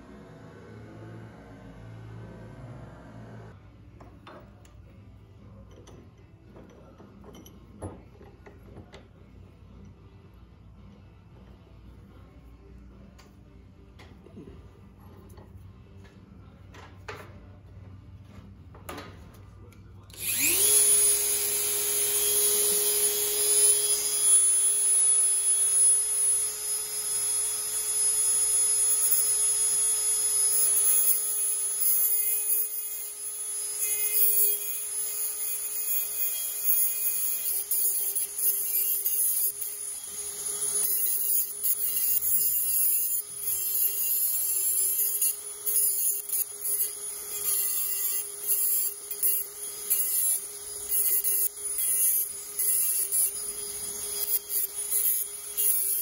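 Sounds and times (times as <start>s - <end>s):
rotary tool cutting steel rod: 20.1s - 56.0s.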